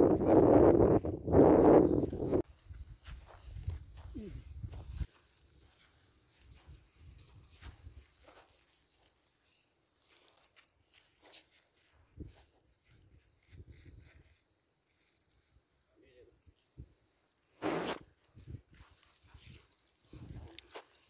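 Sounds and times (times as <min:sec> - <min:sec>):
crickets chirring: 0:00.0 - 0:21.0
footsteps on dry soil: 0:01.1 - 0:14.4, 0:18.4 - 0:21.0.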